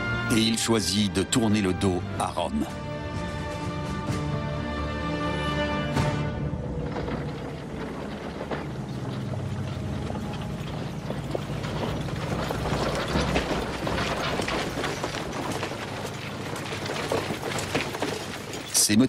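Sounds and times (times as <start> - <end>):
rattling and clicking: 5.9 - 19.0.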